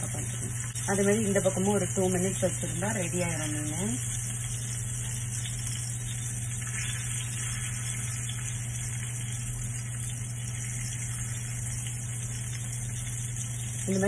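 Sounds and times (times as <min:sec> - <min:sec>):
constant low hum: 0:00.0 - 0:14.0
fish sizzling in oil: 0:00.0 - 0:14.0.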